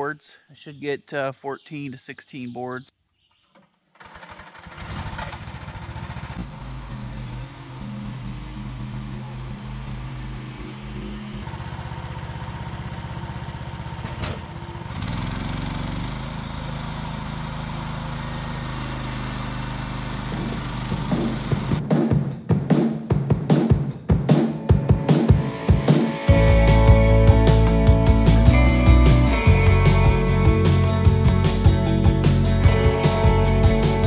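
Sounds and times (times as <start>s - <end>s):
sawmill gas engine running: 4.0s - 21.8s
music with drums and guitar: 20.3s - 34.0s.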